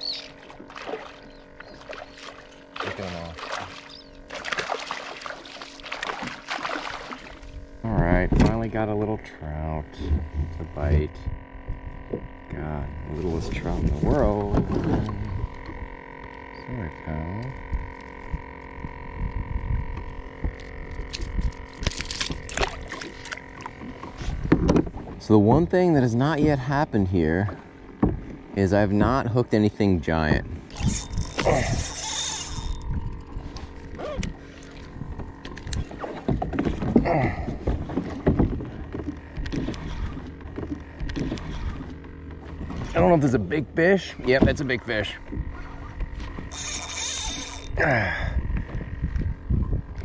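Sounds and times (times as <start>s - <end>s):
fish splashing in water: 0.0s - 7.6s, 22.0s - 24.1s
wind rumble on microphone: 9.8s - 16.0s, 17.5s - 22.8s, 24.1s - 25.8s, 32.7s - 40.2s, 47.2s - 50.0s
fishing reel cranking: 15.0s - 23.7s, 30.7s - 36.1s, 39.0s - 42.2s, 44.9s - 47.8s
reel clicking: 30.7s - 36.2s, 45.4s - 47.8s.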